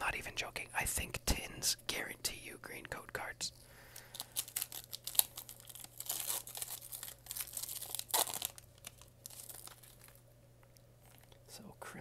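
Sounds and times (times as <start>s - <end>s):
foil wrapper crinkling and tearing: 3.8s - 10.2s.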